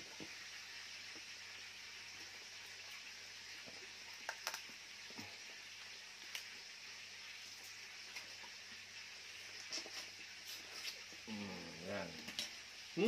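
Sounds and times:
steady background hiss: 0.0 - 13.0
lobster shell cracking: 4.2 - 4.7.

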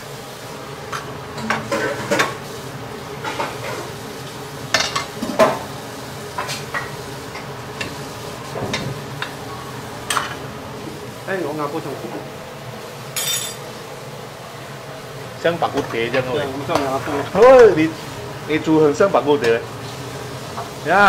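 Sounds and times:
sauce simmering sizzle: 0.0 - 11.3, 16.3 - 21.0.

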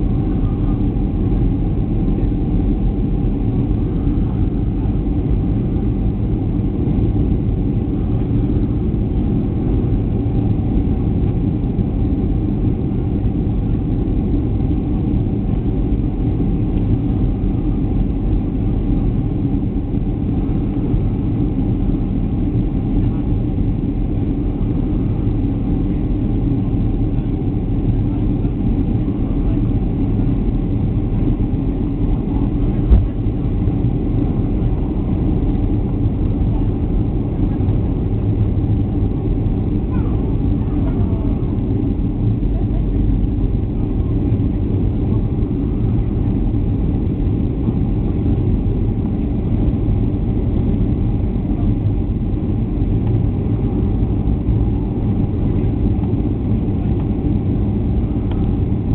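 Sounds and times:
jet airliner cabin drone: 0.0 - 58.9.

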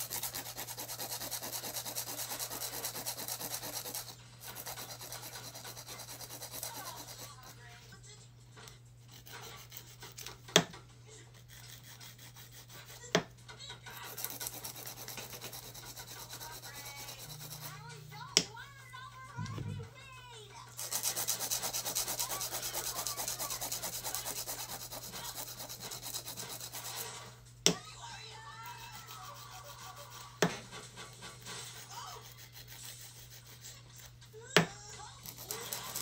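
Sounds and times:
nail buffer rubbing fingernails: 0.0 - 7.7, 8.6 - 10.6, 11.2 - 13.2, 13.9 - 18.4, 20.8 - 27.3, 28.4 - 34.2, 35.1 - 36.0.

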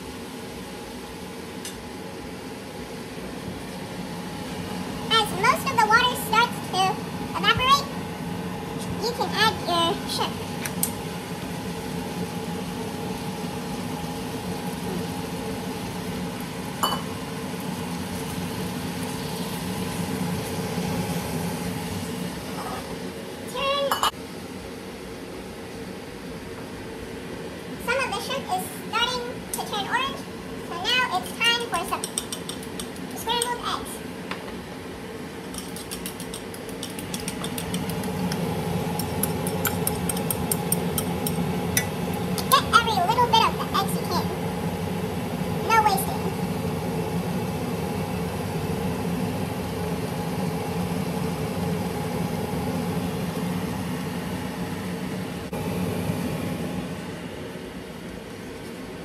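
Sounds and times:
cooktop hum with held tones: 0.0 - 59.0
vegetables sizzling in a pan: 8.9 - 23.0
chopsticks clicking against bowl: 32.0 - 33.2, 35.6 - 42.6.

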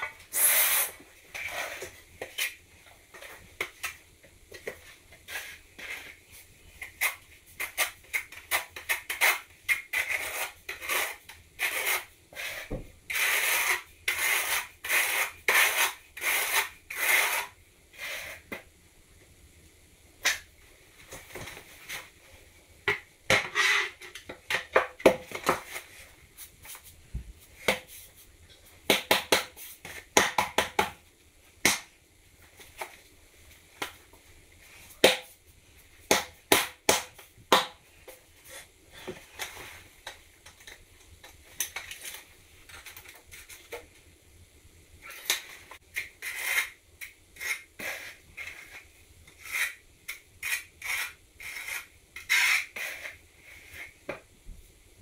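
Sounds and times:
trowel scraping mortar: 7.0 - 18.4, 46.0 - 46.8, 47.4 - 54.0.

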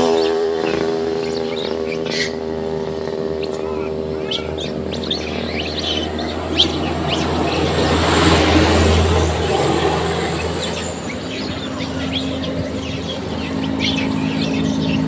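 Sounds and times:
monkeys chirping squeaks: 0.0 - 15.0
vehicle passing on road: 0.0 - 15.0.

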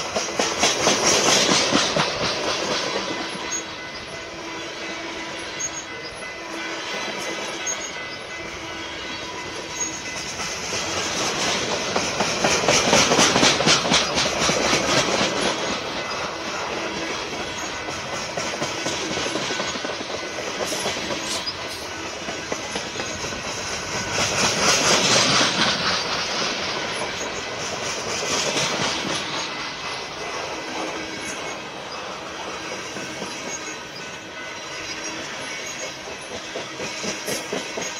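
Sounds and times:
freight train wheels clattering: 0.0 - 37.9.

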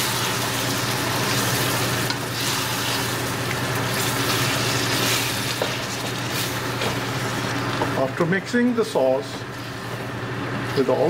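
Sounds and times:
vegetables sizzling in a pan: 0.0 - 8.0.

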